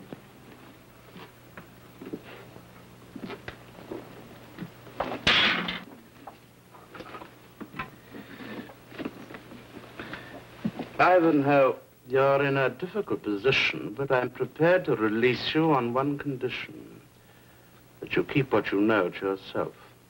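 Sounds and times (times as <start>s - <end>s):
footsteps: 6.2s - 11.0s.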